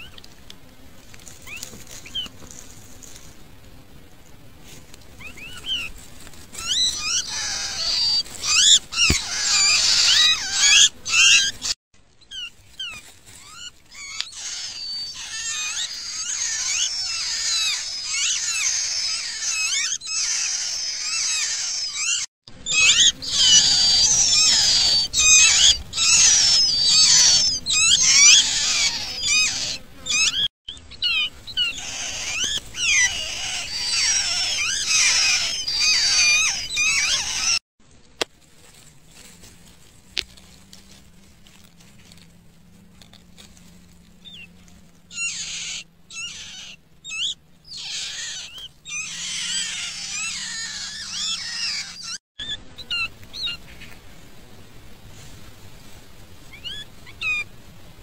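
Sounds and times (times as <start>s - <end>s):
nestlings begging squeaks: 1.4s - 2.4s, 5.2s - 37.6s, 44.2s - 53.9s, 56.5s - 57.5s.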